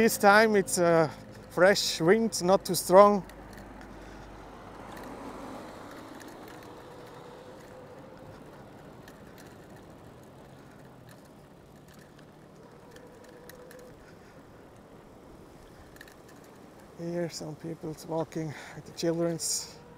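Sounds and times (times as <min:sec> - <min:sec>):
faint wind and sea: 0:00.0 - 0:19.9
light ticks: 0:02.4 - 0:14.9, 0:15.5 - 0:17.0.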